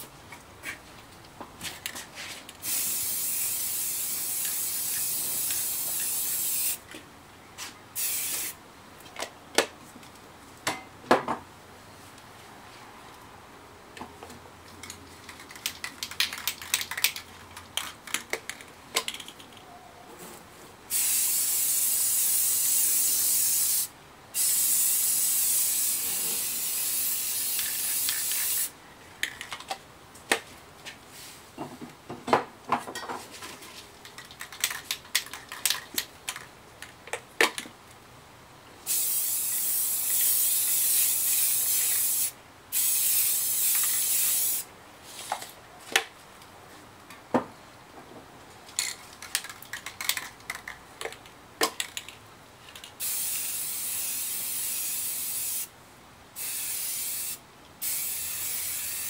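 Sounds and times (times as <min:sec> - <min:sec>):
spray paint can hissing: 0:02.6 - 0:06.8, 0:08.0 - 0:08.6, 0:20.9 - 0:28.7, 0:38.9 - 0:44.7, 0:53.0 - 0:55.7, 0:56.4 - 0:59.0.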